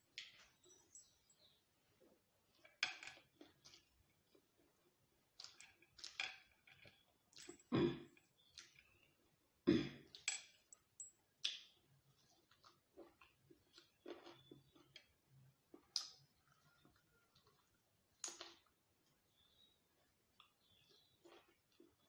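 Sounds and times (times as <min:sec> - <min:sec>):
chewing and mouth clicks: 0:06.8 - 0:09.1, 0:10.1 - 0:19.4, 0:20.0 - 0:22.0.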